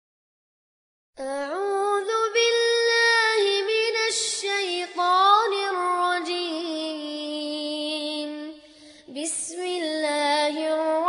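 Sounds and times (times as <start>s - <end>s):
quick breath: 8.6s - 9.1s.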